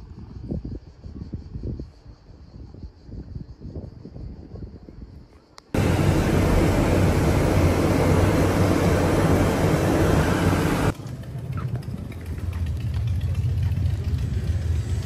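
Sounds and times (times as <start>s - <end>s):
loud rushing noise: 5.8s - 10.9s
vehicle engine hum: 5.8s - 15.0s.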